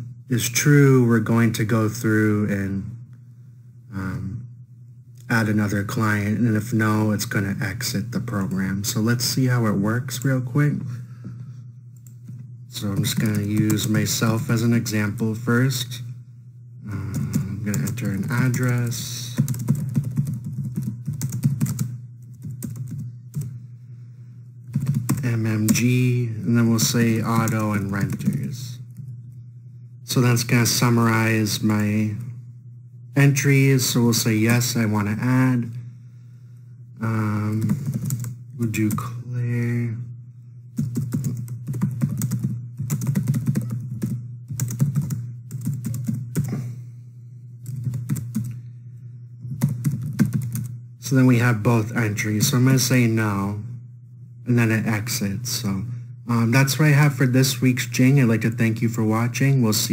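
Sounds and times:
steady low hum: 0:00.0 - 0:59.9
computer keyboard typing: 0:12.8 - 0:15.3, 0:16.9 - 0:23.6, 0:24.7 - 0:25.9, 0:26.8 - 0:29.1, 0:37.4 - 0:39.0, 0:40.8 - 0:46.6, 0:47.6 - 0:48.6, 0:49.5 - 0:50.7.

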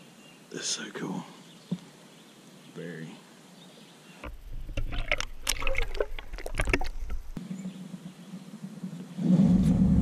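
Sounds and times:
water splashing and sloshing: 0:04.2 - 0:07.4
low rumble: 0:08.1 - 0:10.0.

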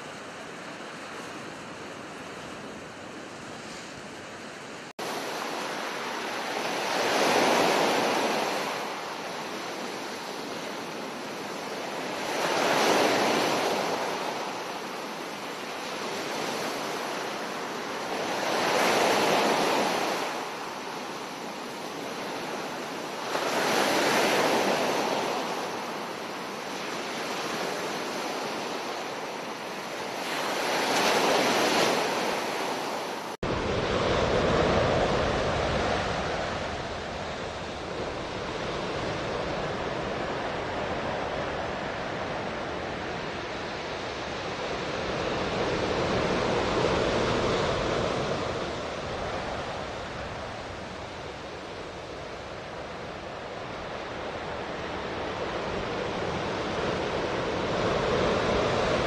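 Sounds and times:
ocean surf breaking on beach: 0:00.0 - 0:59.0.

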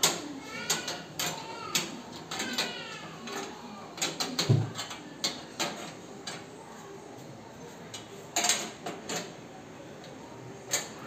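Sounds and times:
sheet-metal clinks and knocks: 0:08.4 - 0:09.4.

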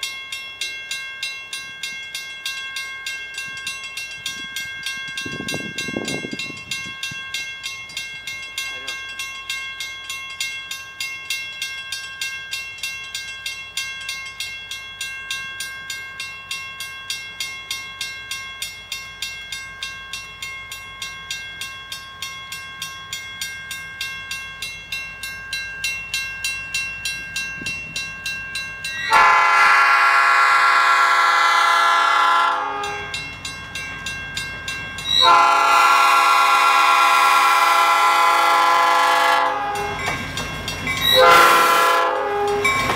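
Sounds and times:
locomotive bell dinging: 0:00.0 - 0:42.9
locomotive air horn blasts: 0:29.1 - 0:33.1, 0:35.2 - 0:40.0, 0:41.2 - 0:42.7.

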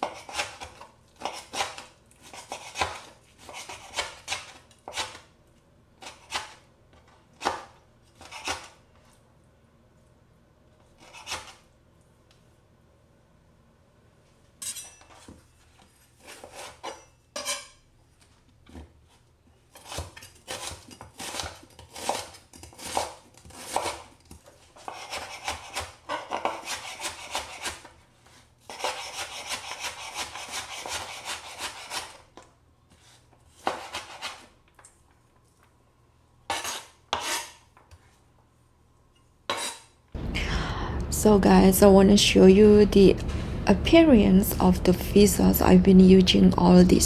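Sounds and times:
knife chopping onion: 0:00.0 - 0:05.3, 0:06.0 - 0:08.8, 0:19.7 - 0:27.9, 0:28.6 - 0:34.5
knife scraping cutting board: 0:00.0 - 0:05.3, 0:06.0 - 0:09.2, 0:11.0 - 0:11.7, 0:14.6 - 0:17.8, 0:18.7 - 0:34.6, 0:36.5 - 0:38.2, 0:39.5 - 0:40.0.

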